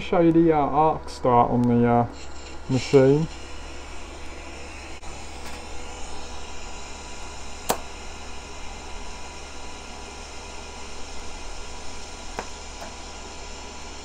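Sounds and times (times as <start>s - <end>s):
welding arc hissing and humming: 0.0s - 14.0s
welding arc striking crack: 7.6s - 8.0s.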